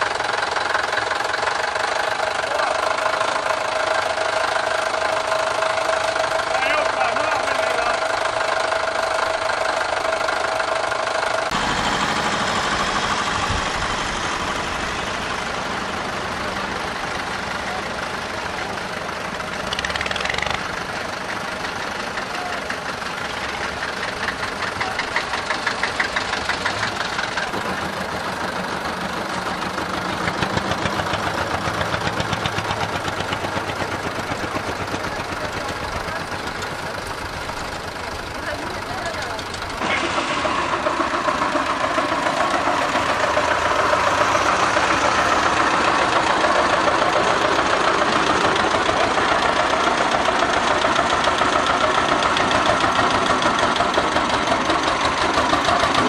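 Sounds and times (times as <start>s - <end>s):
tractor engines running: 0.0s - 56.0s.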